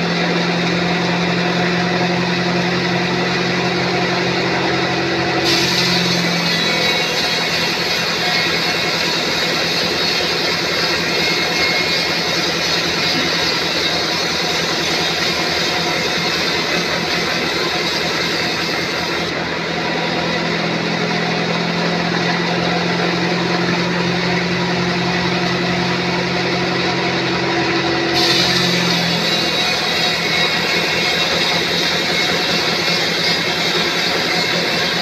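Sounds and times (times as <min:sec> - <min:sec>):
band saw cutting log: 0:00.0 - 0:35.0.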